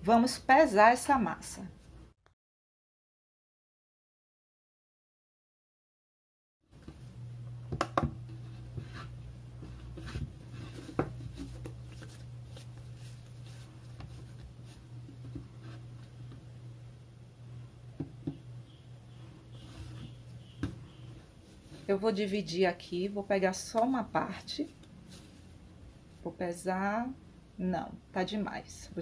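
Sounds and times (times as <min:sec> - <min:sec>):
steady low hum: 0:06.7 - 0:29.0
knocks and taps on a worktop: 0:07.7 - 0:08.2, 0:18.0 - 0:18.4.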